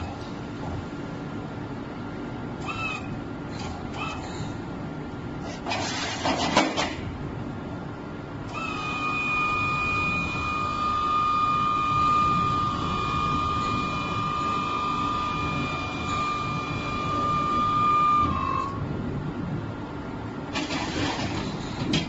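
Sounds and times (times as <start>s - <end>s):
hydraulic pump motor whining: 2.6s - 4.4s, 8.4s - 18.9s.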